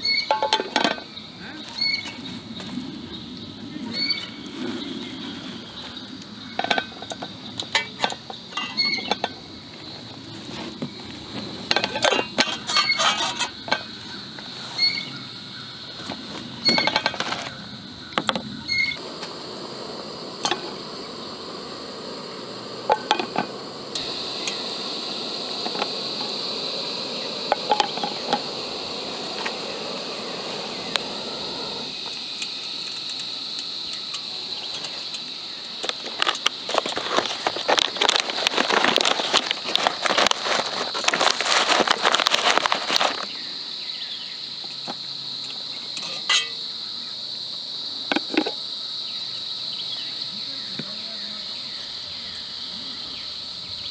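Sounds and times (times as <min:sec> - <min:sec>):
gas burner hissing: 0:00.0 - 0:15.1, 0:18.7 - 0:43.4
metal pot and lid clinking: 0:00.2 - 0:01.0, 0:06.6 - 0:09.4, 0:46.0 - 0:46.6.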